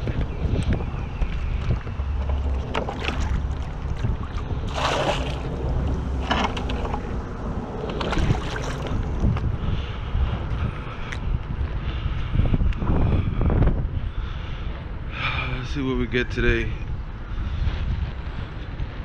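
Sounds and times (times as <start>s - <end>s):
water sloshing: 0.0s - 9.4s
wind rumble on microphone: 0.0s - 19.0s
bucket filling with water splashing: 2.4s - 5.8s.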